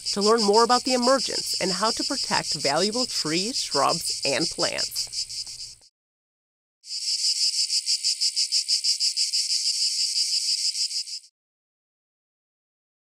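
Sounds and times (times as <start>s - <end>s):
cicadas buzzing: 0.0s - 5.9s, 6.8s - 11.3s.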